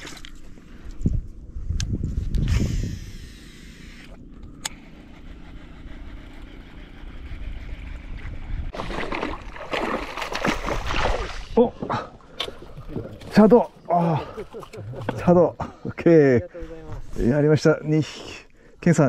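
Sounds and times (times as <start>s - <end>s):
boat engine rumble: 2.8s - 9.8s
water noise: 6.2s - 15.8s
fish splashing at surface: 8.7s - 11.6s.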